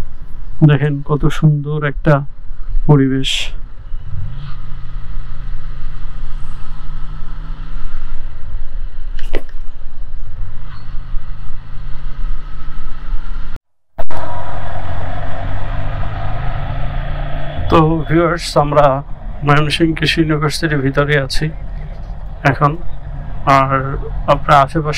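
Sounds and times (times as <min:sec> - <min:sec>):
wind rumble on microphone: 0:09.8 - 0:24.9
motorcycle engine: 0:14.2 - 0:24.9.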